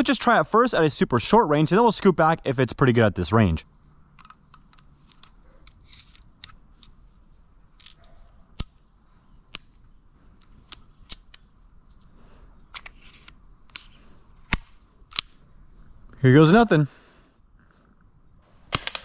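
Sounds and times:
pistol cocking clicks and snaps: 4.1 - 7.0, 7.8 - 8.8, 10.4 - 11.5, 12.7 - 15.4.

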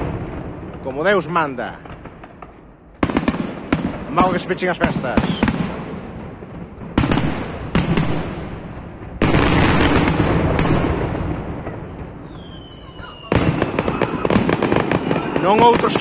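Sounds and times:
crackling rumble: 0.0 - 16.0
fireworks bangs: 0.0 - 16.0.

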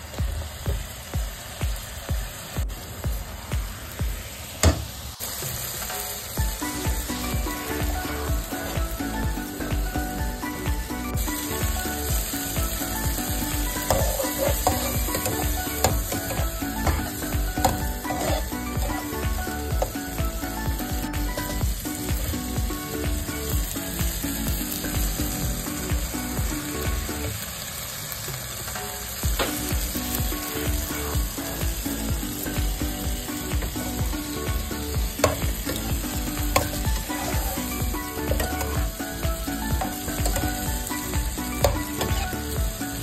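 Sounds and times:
food sizzling in a pot: 0.0 - 43.0
metal spatula scraping: 13.7 - 19.0, 41.6 - 42.4.

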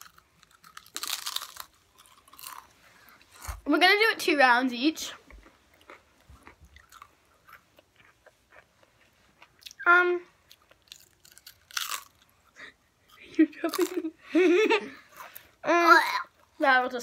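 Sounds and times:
chips being chewed: 0.0 - 2.7, 5.4 - 9.8, 10.5 - 12.4.

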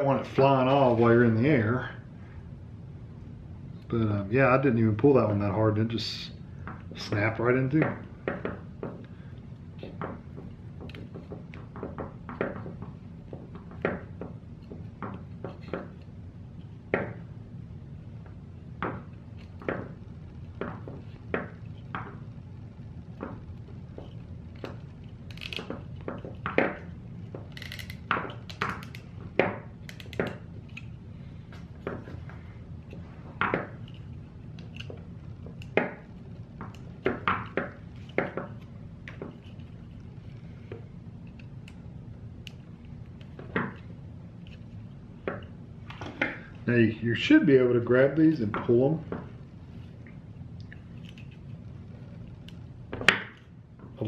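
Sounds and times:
steady low hum: 0.0 - 54.0
zip ties clicking: 29.8 - 30.9.

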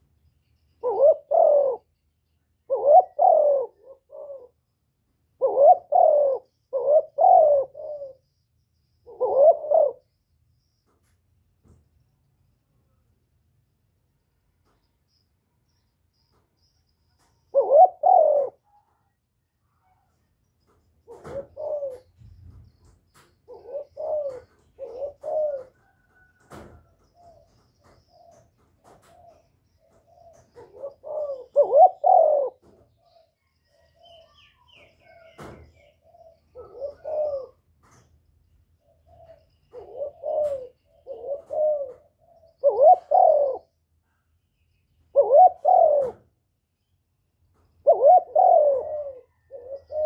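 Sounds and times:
dove cooing: 0.8 - 2.0, 2.6 - 4.7, 5.4 - 10.2, 17.2 - 19.2, 20.8 - 38.1, 38.8 - 43.8, 45.0 - 46.5, 47.7 - 50.0.

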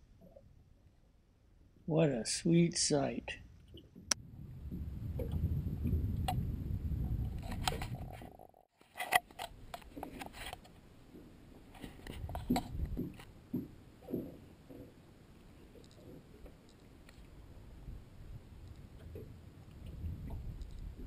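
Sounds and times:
wind rumbling on microphone: 3.6 - 8.6, 9.4 - 15.0, 15.6 - 21.0.

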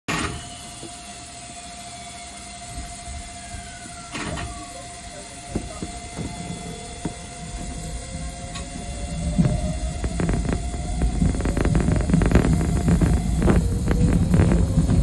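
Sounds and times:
electric train hum with high tone: 0.1 - 15.0
falling whistle-like tone: 0.2 - 15.0.

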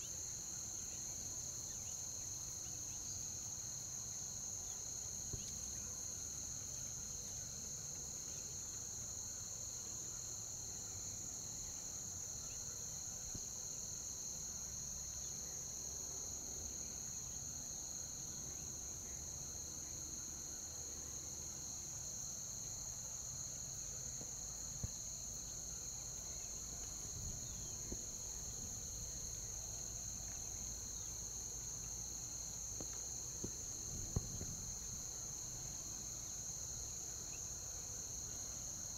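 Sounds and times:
insects trilling: 0.0 - 38.9
faint ticks: 31.7 - 32.1, 32.7 - 34.9.

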